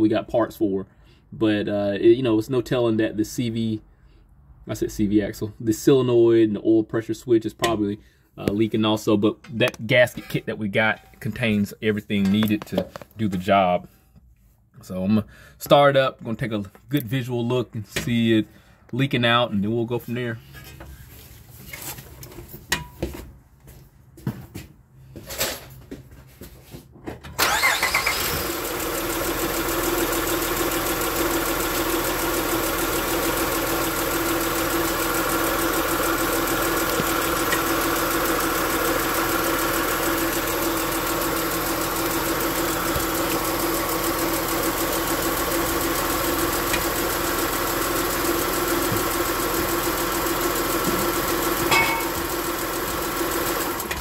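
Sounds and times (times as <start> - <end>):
car engine starting and idling: 27.4 - 54.0.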